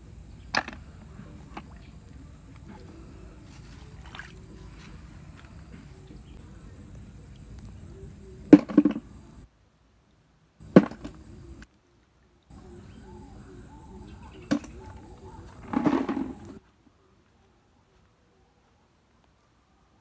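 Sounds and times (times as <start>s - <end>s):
hand splashing in muddy water: 3.6s - 5.0s.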